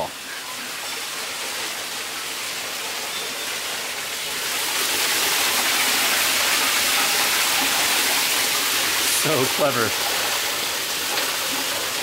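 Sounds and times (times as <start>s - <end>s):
water splashing on wheel paddles: 2.5s - 12.0s.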